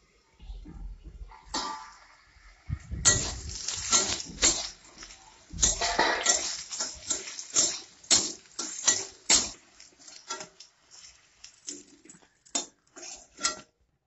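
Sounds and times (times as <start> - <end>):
metal spatula scraping steel pan: 3.0 - 13.7.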